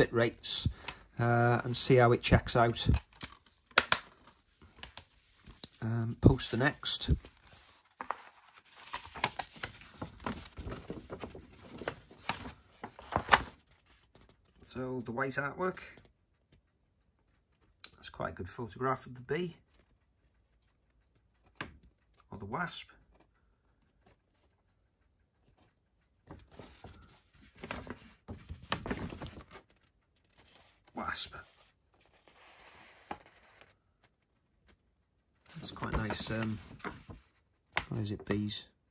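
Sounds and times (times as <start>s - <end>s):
card being handled: 2.3s - 14.3s.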